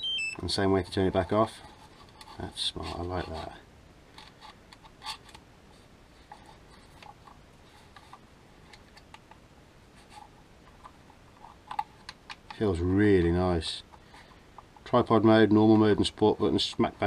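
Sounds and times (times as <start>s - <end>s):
hands handling plastic controller: 4.1s - 5.5s, 6.2s - 9.4s, 10.0s - 12.7s.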